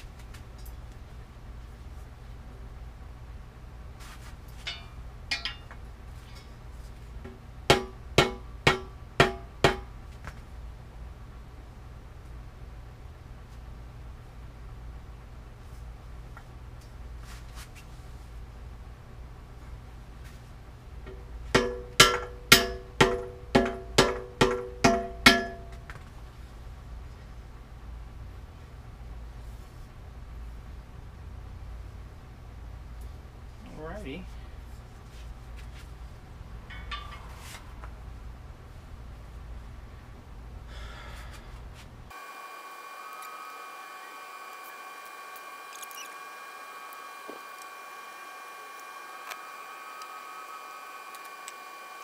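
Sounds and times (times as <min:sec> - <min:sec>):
hammer striking metal: 0:04.7 - 0:05.8, 0:07.7 - 0:09.9, 0:21.6 - 0:25.8, 0:36.7 - 0:37.4.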